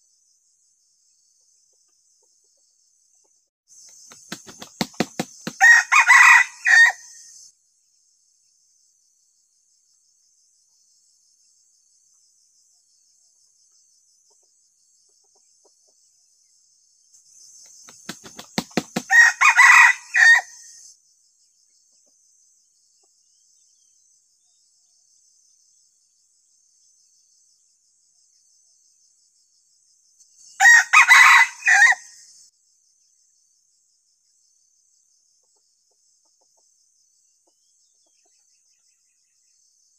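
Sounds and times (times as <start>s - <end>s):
wing-flaps: 4.0s - 5.6s, 17.8s - 19.1s
rooster crowing: 5.4s - 7.2s, 18.7s - 20.7s, 30.6s - 32.2s.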